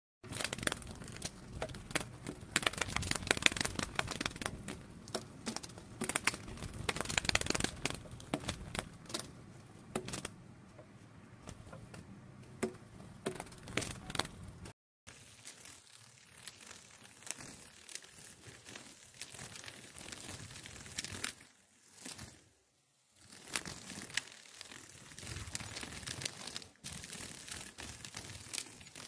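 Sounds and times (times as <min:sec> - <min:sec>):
butterfly wings fluttering: 0:00.3 - 0:09.4, 0:10.0 - 0:10.3.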